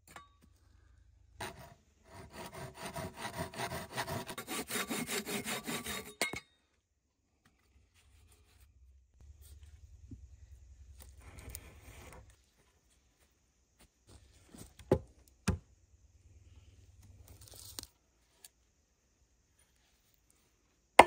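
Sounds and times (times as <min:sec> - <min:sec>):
branches rustling and scraping: 0:08.0 - 0:14.8, 0:16.9 - 0:18.6.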